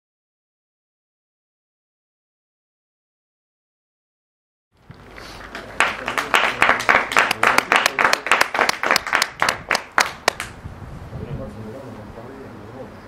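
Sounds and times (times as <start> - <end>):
loud close claps: 4.9 - 10.6
scattered applause: 5.0 - 10.6.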